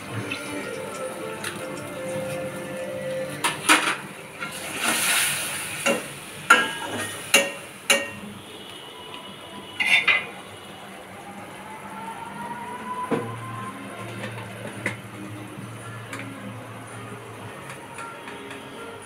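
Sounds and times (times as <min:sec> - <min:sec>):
utensils clattering: 0:00.2 - 0:08.2
paste sizzling in oil: 0:04.4 - 0:07.7.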